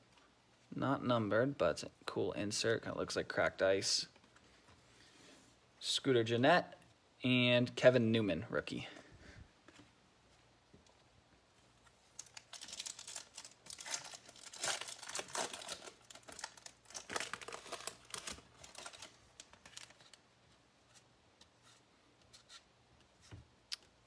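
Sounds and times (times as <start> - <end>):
card pack wrapper tearing and crinkling: 12.1 - 20.2.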